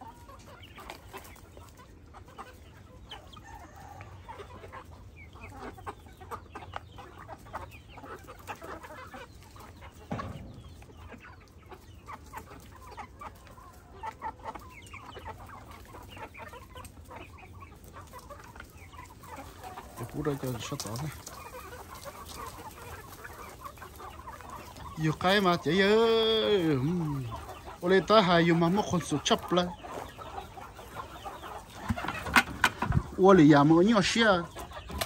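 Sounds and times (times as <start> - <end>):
chickens clucking: 0.0 - 35.0.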